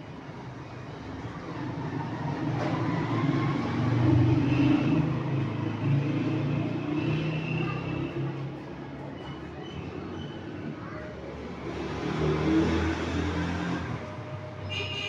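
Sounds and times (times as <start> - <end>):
passing vehicle rumble: 0.9 - 9.1, 11.4 - 14.6.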